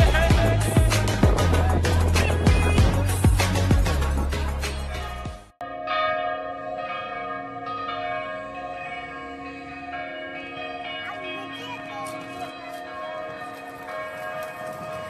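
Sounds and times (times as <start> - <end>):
background music: 0.0 - 5.6
church bells ringing: 5.6 - 15.0.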